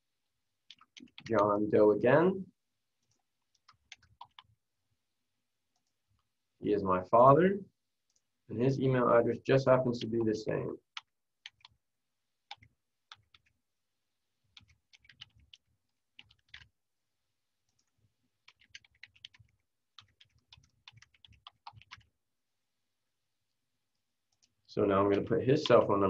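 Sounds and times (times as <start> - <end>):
faint keyboard typing: 0.6 - 1.5, 2.9 - 4.6, 5.7 - 6.3, 9.8 - 11.8, 12.4 - 13.6, 14.4 - 16.8, 17.6 - 22.2, 23.9 - 25.9.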